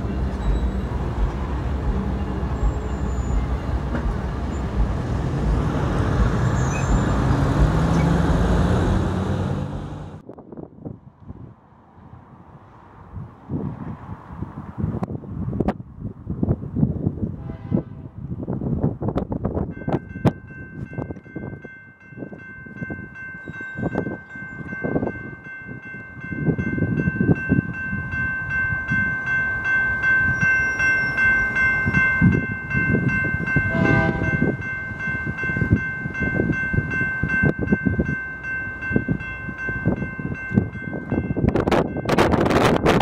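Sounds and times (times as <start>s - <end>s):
railroad crossing bells ringing: 0.0s - 8.3s, 19.5s - 43.0s.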